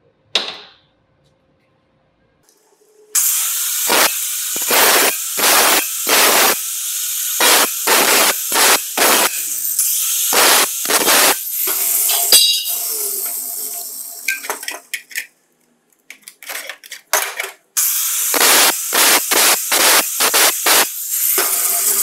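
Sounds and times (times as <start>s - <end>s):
angle grinder cutting steel: 3.2s - 14.6s, 17.8s - 22.0s.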